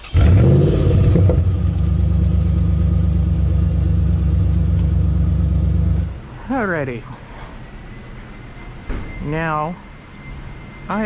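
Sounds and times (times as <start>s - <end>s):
car engine starting and idling: 0.0s - 6.2s.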